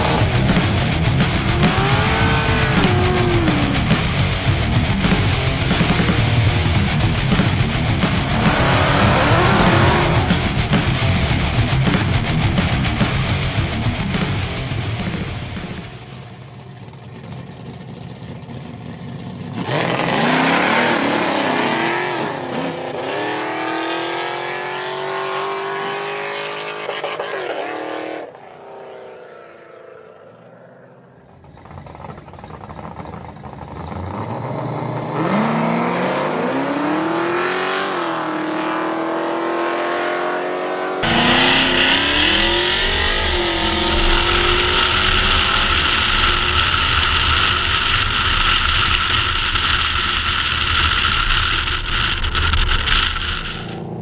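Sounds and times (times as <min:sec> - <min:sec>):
drag car engines rumbling: 0:00.0 - 0:27.4, 0:28.2 - 0:39.0, 0:41.0 - 0:54.0
drag car launching through upshifts: 0:00.0 - 0:54.0.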